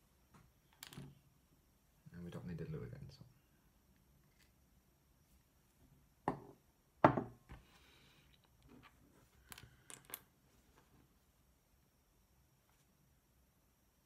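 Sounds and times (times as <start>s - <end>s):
objects knocking on workbench: 6.2s - 7.6s.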